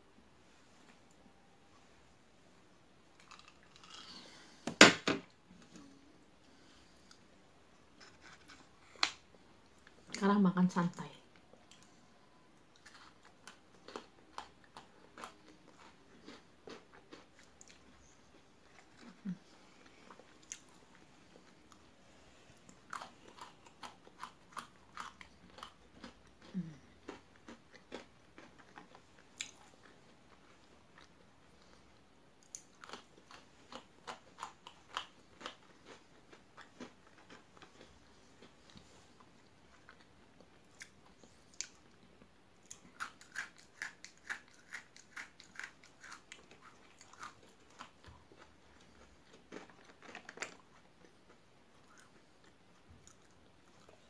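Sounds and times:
biscuit sticks crunching: 3.2s - 4.4s, 22.7s - 31.8s, 32.4s - 38.8s, 42.7s - 54.0s.

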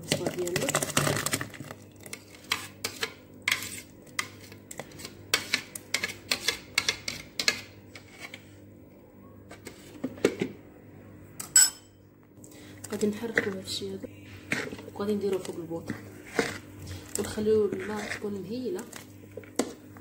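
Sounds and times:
kitchen utensils clinking: 11.4s - 12.0s.

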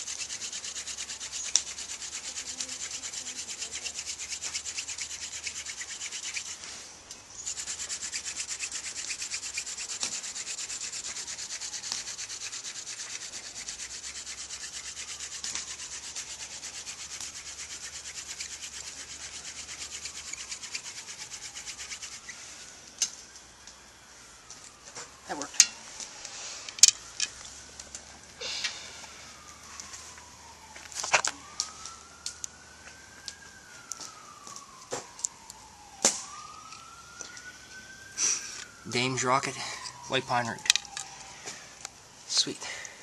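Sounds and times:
hand drill spindle grinding wood: 0.0s - 6.8s, 7.4s - 22.4s.

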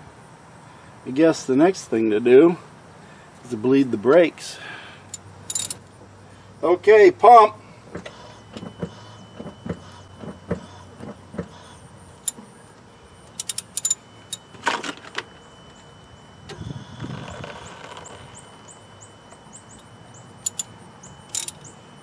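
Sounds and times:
wrench clicking on metal: 5.1s - 5.8s, 13.4s - 14.0s, 20.4s - 20.7s, 21.3s - 21.7s.

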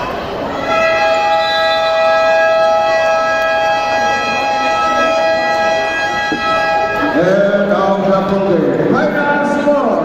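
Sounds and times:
scoreboard buzzer: 0.6s - 7.2s.

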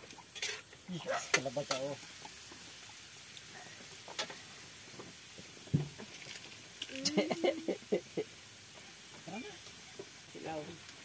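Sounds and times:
faint steady hiss: 0.0s - 11.0s
soft knock: 5.7s - 6.0s.

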